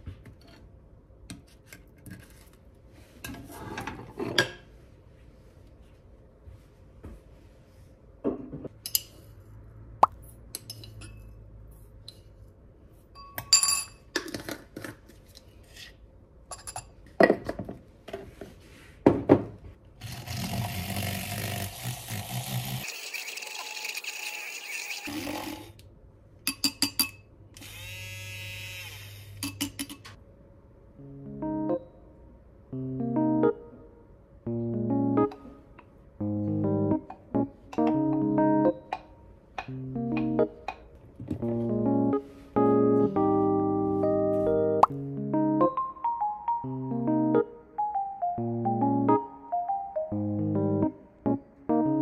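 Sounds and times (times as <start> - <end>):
glass and spoon clinks: 13.2 - 14.1
milk frother whirring: 20.0 - 25.8.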